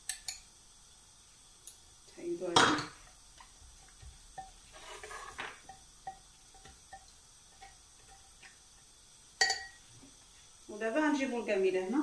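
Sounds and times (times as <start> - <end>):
spatula tapping a bowl: 2.6 - 4.6, 5.6 - 8.6
spatula scraping a bowl: 4.4 - 5.7.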